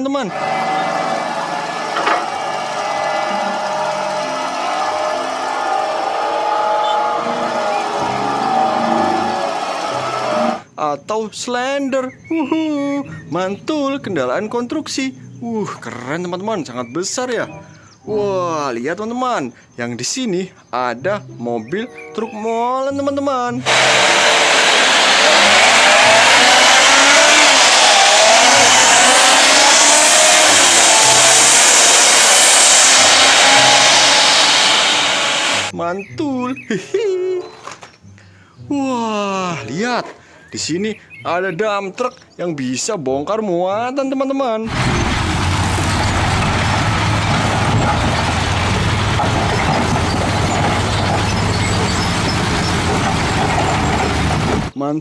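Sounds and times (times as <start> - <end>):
truck engine running: 0.0 - 10.6, 23.7 - 35.7, 44.7 - 54.7
rocks and earth sliding: 44.7 - 54.7.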